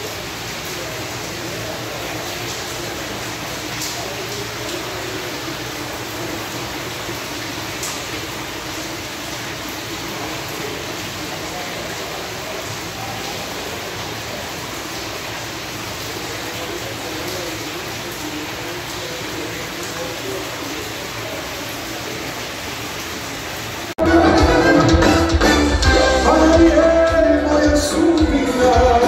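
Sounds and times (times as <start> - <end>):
murmur of crowd voices: 0.0 - 23.3, 24.0 - 29.0.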